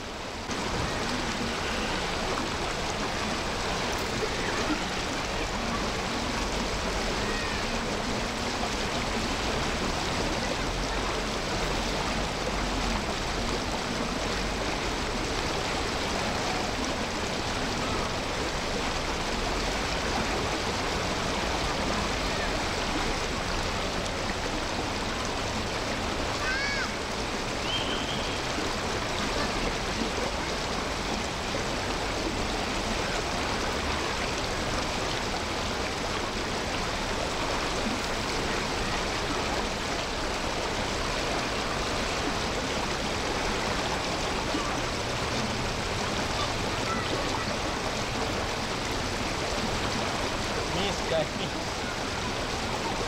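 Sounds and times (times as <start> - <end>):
running water rushing: 0.0 - 53.0
short bird chirps: 27.6 - 28.4.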